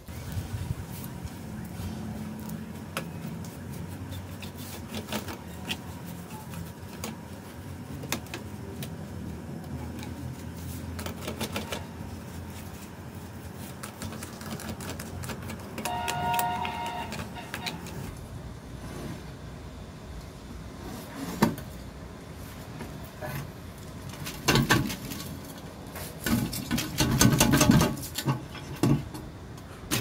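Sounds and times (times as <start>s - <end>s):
brief high-pitched tone: 15.9s - 18.0s.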